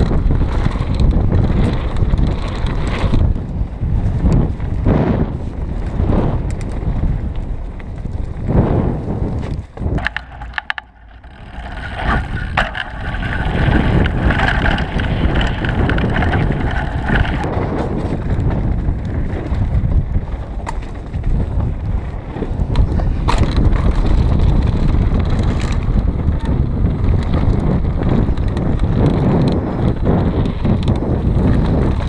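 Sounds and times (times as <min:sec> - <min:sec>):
bike tyres rumbling over trail: 0:00.0 - 0:32.0
wind buffeting microphone: 0:00.0 - 0:32.0.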